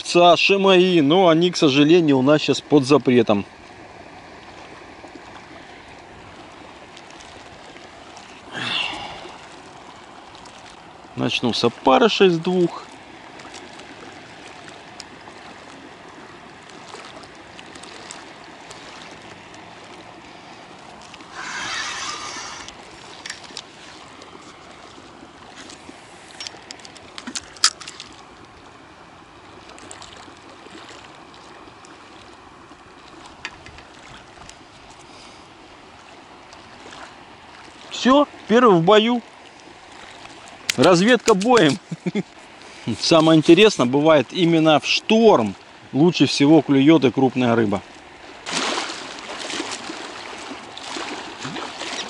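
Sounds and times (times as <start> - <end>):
small waves lapping: 0.0 - 52.0
fishing line running off reel: 20.8 - 24.1.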